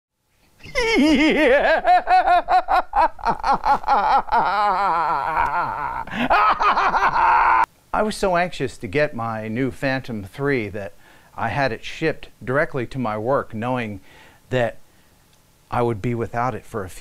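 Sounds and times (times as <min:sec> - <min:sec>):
man laughing hard: 0:00.6 - 0:07.7.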